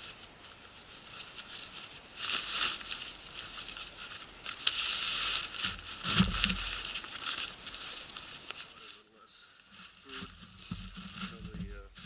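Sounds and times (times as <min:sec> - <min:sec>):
synthetic clothing rustling: 0:00.0 - 0:12.0
dull thump: 0:05.6 - 0:06.8.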